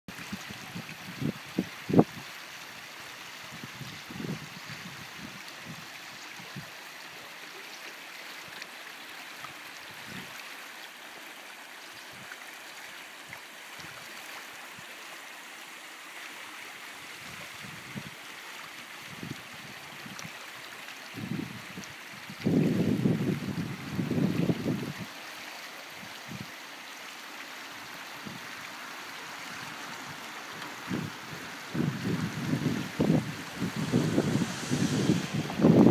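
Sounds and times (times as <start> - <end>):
stream rushing over stones: 0.1 - 35.9
low rumbling: 28.2 - 35.9.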